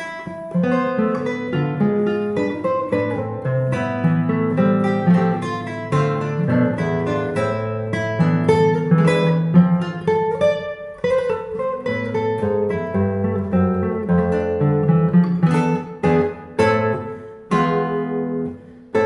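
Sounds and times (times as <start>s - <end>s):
classical guitar fingerstyle: 0.0s - 19.0s.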